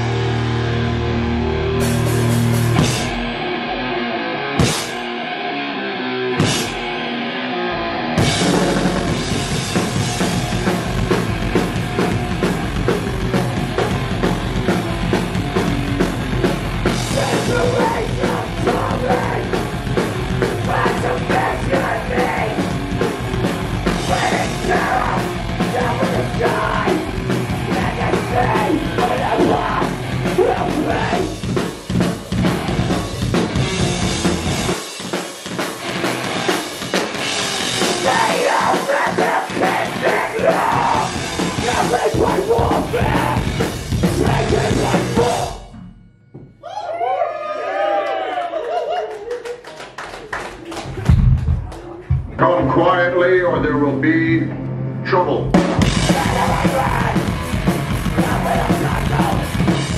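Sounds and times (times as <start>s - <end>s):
distorted guitars: 0.0s - 46.5s, 51.0s - 59.9s
drums: 0.0s - 54.5s, 55.2s - 59.9s
shouted vocals: 17.1s - 19.6s, 20.5s - 22.7s, 24.0s - 31.3s, 38.0s - 43.5s, 46.6s - 49.1s, 56.1s - 57.4s, 58.1s - 59.6s.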